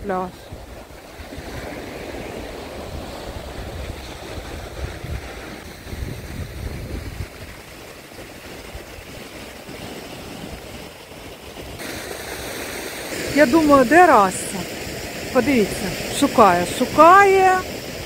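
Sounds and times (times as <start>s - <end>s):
wind rumbling on microphone: 0.0s - 11.8s
waves washing onto shore: 0.0s - 18.0s.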